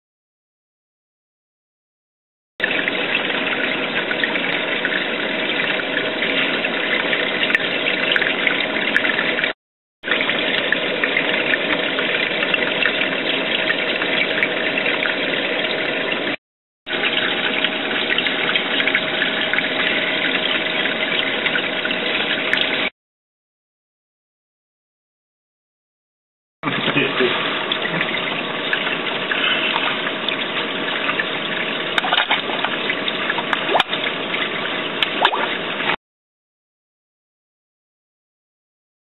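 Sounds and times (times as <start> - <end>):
aquarium pump noise: 2.6 - 22.9, 26.6 - 36.0
circulating water rushing: 2.6 - 22.9, 26.6 - 36.0.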